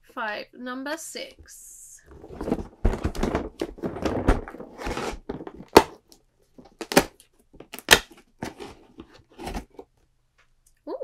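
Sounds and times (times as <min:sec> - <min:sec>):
cardboard box rustling and scraping: 0:02.0 - 0:05.8, 0:08.4 - 0:09.9
cardboard door tearing open: 0:02.4 - 0:06.0, 0:06.8 - 0:07.2.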